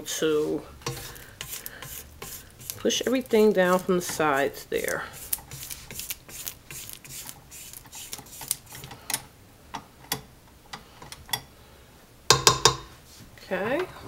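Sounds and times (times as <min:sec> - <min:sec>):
spatula scraping and tapping steel bowl: 0:00.8 - 0:09.0.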